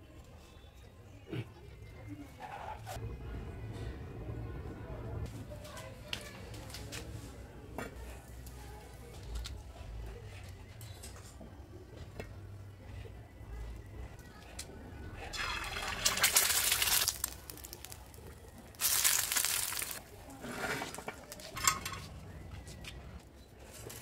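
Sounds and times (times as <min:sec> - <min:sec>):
egg sizzling in hot oil: 0:15.3 - 0:20.0.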